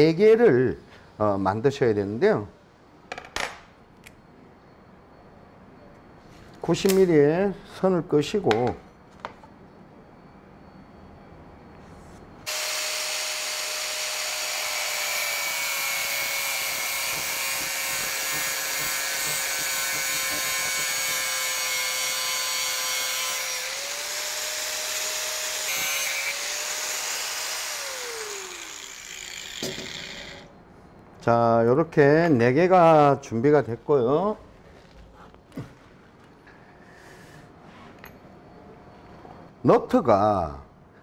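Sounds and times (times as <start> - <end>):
angle grinder cutting steel bolts: 12.5 - 30.5
grinder winding down: 12.5 - 30.5.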